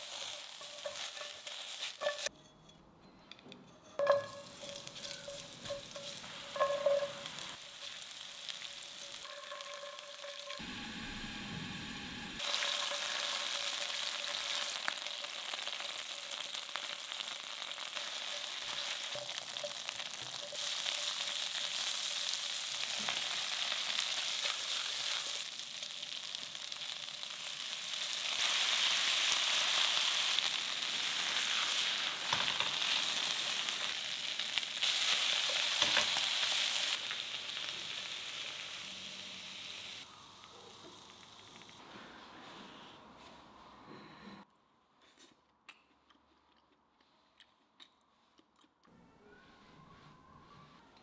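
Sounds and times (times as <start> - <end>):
oil sizzling in frying pan: 0.0 - 2.3, 4.0 - 41.8
spatula stir-frying: 0.0 - 2.5, 3.7 - 11.4, 12.4 - 41.8.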